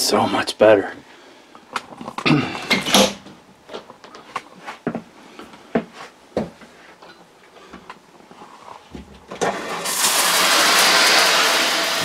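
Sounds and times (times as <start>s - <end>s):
water pump humming: 9.4s - 12.0s
water gushing from faucet: 9.5s - 12.0s.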